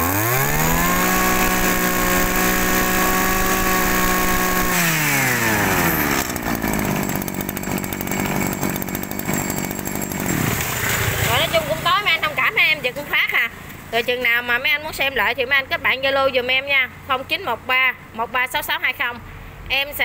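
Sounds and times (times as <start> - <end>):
brush cutter engine revving: 0.0 - 12.2.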